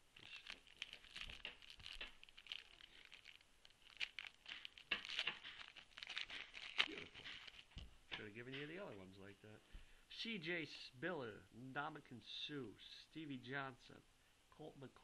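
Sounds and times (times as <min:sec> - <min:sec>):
foil wrapper crinkling and tearing: 0:00.0 - 0:07.8.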